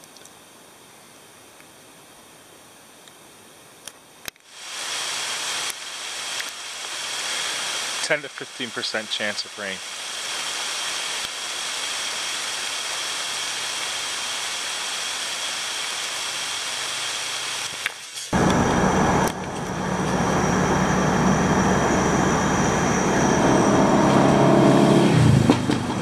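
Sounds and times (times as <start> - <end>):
rain falling hiss: 0.3 - 20.4
car driving on road: 18.4 - 26.0.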